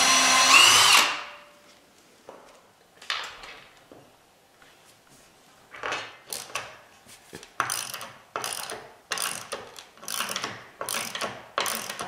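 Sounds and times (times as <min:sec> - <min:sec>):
ratchet clicking: 0:07.6 - 0:12.0.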